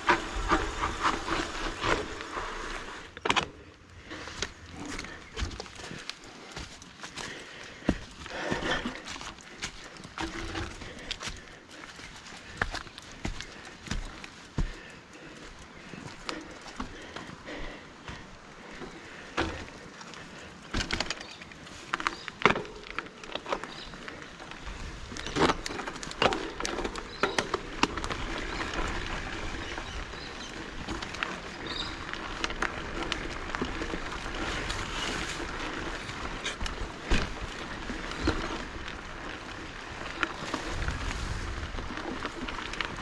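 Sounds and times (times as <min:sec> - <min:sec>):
bike knocks and rattles: 0:04.3 - 0:15.1, 0:15.8 - 0:43.0.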